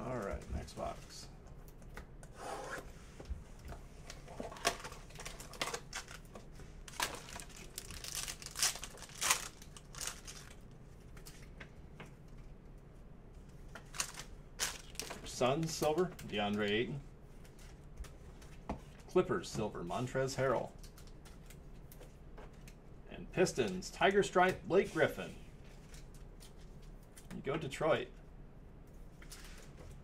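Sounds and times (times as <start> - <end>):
cardboard and wrapper tearing: 6.9 - 10.6.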